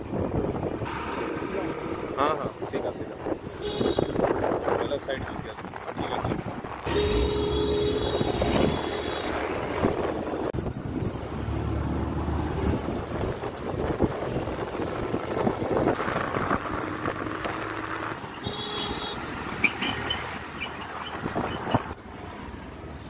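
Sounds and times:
wind on microphone: 0:00.0 - 0:01.0, 0:03.0 - 0:11.3, 0:12.6 - 0:18.3
vehicles passing close by: 0:00.0 - 0:23.0
scooter engine: 0:06.8 - 0:09.6.

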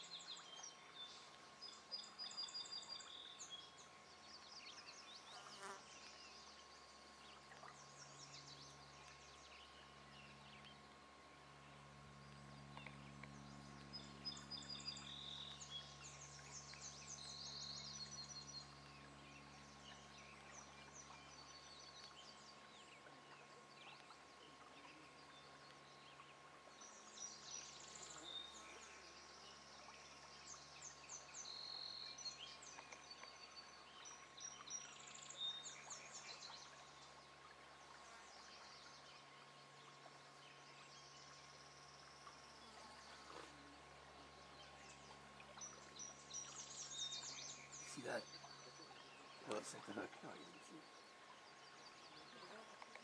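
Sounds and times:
low insect buzz: 0:00.0 - 0:16.7
faint birds chirping: 0:00.0 - 0:53.0.

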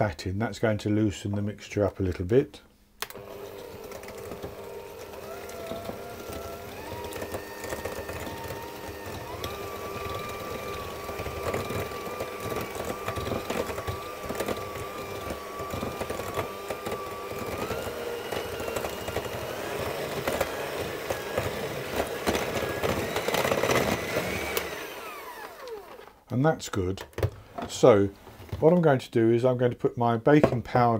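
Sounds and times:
electric mixer motor whine: 0:03.1 - 0:26.1.

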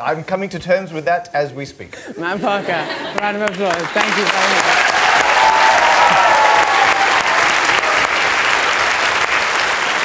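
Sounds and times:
crowd clapping: 0:03.1 - 0:10.0.

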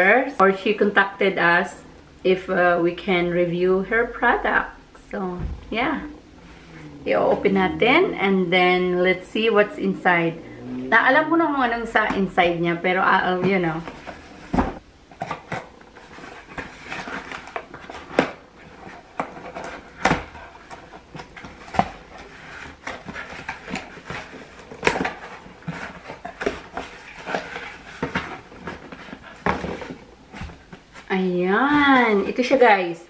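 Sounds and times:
cardboard box being unpacked: 0:13.8 - 0:32.4.

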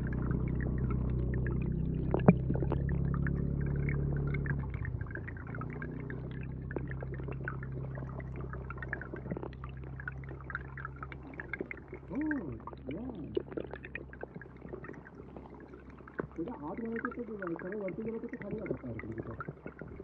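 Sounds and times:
small clicks and crackles: 0:00.0 - 0:20.0
underwater stream rumble: 0:00.0 - 0:20.0.

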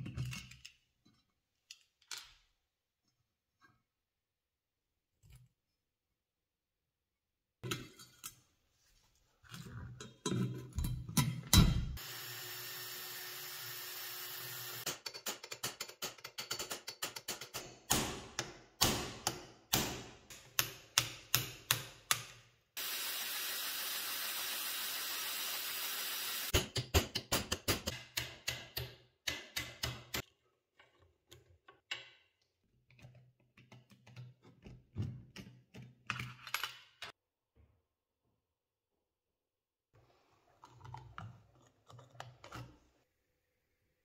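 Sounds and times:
hammer striking steel punch: 0:17.9 - 0:22.2.

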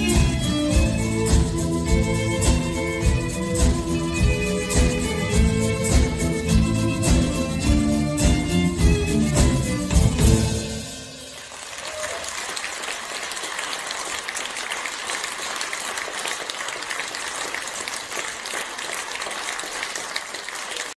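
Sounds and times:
audience applauding: 0:10.1 - 0:21.0.

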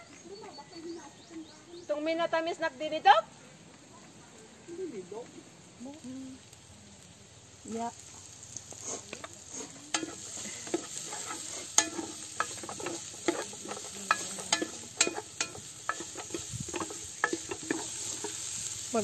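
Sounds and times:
aromatics sizzling in oil: 0:04.4 - 0:19.0
wooden spoon scraping metal pot: 0:08.7 - 0:19.0.

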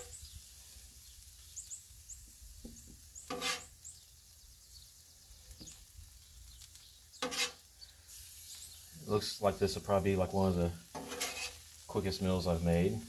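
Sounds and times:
metal spatula scraping griddle: 0:03.2 - 0:03.8, 0:07.1 - 0:08.4, 0:10.8 - 0:11.9.

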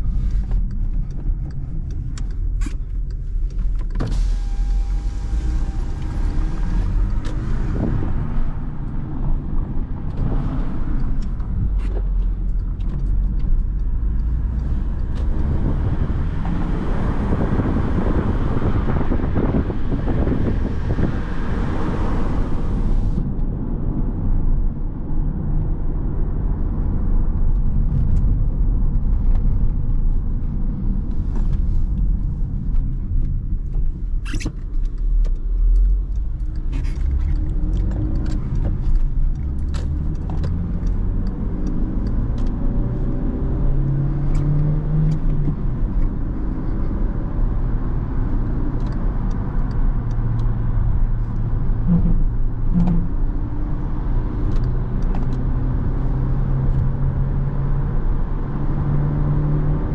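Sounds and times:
car engine: 0:00.0 - 0:59.9.

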